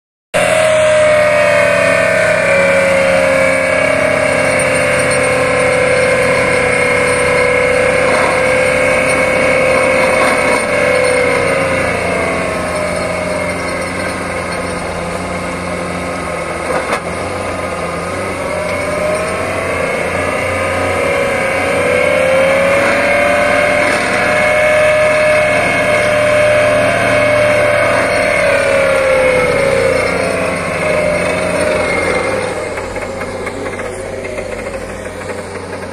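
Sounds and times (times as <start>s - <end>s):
vibratory hammer drone: 0.4s - 35.9s.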